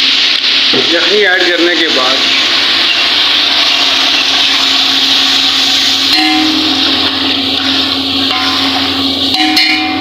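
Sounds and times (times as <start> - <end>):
stock bubbling and sizzling: 0.0 - 10.0
low steady hum: 2.5 - 10.0.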